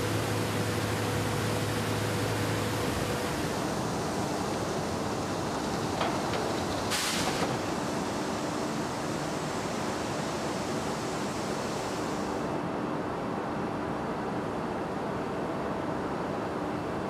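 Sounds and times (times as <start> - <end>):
steel mill machinery noise: 0.0 - 12.7
sharp hiss: 6.9 - 7.7.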